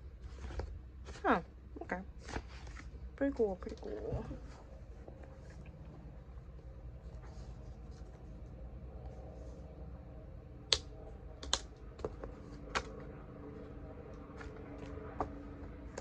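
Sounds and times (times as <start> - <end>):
low steady hum: 0.0 - 16.0
notebook being handled: 0.1 - 1.4, 2.2 - 5.4, 7.0 - 9.6, 11.4 - 16.0.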